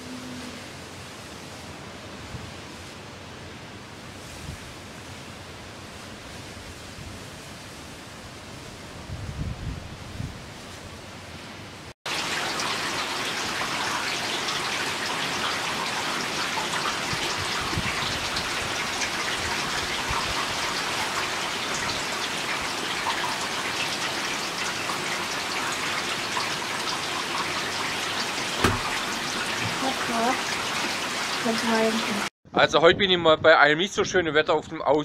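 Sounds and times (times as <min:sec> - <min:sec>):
heavy rain pouring: 0:12.1 - 0:32.3.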